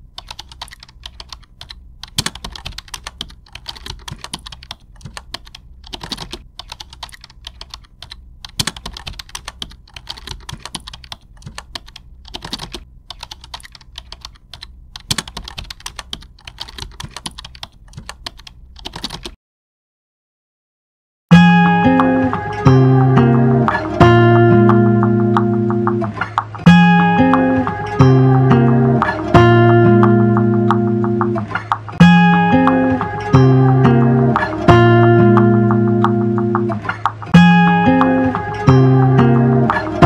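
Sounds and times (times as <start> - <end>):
computer keyboard typing: 0.2 - 19.4.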